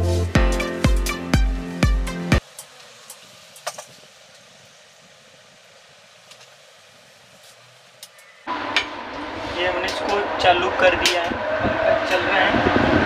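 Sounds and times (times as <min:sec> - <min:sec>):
electric fan rushing air: 0:08.5 - 0:13.0.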